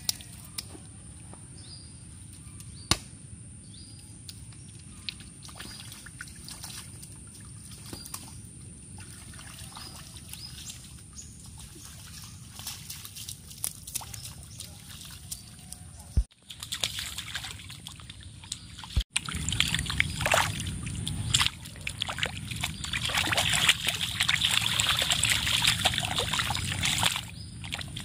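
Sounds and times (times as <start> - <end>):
bare feet splashing in puddle: 5.4 - 8.4, 9.0 - 28.0.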